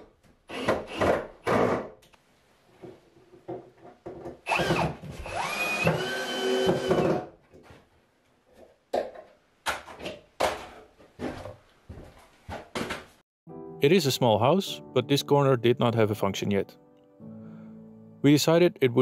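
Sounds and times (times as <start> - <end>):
power drill running: 4.5 - 7.3.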